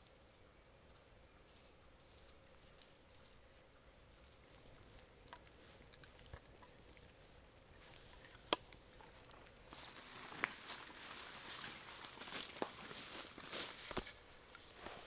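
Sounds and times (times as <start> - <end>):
footsteps on grass and rock: 0.9 - 5.9, 9.0 - 15.0.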